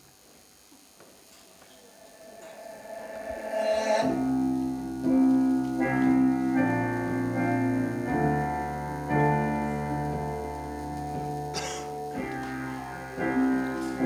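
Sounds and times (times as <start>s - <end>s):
slow keyboard chords: 1.4s - 14.0s.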